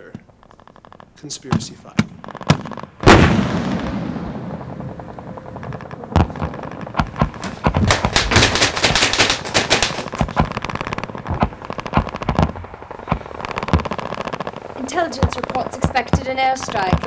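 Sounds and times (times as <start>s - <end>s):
single gunshots: 1.4s - 14.8s
automatic gunfire: 6.2s - 17.0s.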